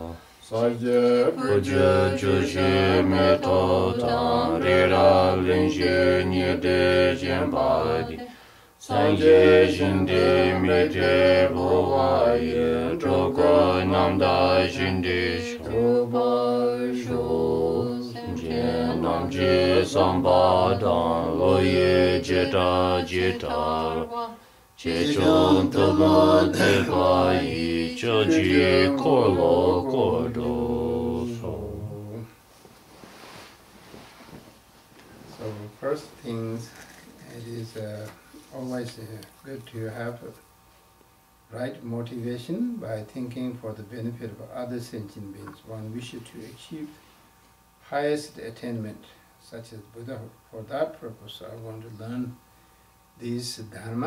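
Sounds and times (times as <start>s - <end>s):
rhythmic prayer chanting: 0.0s - 32.4s.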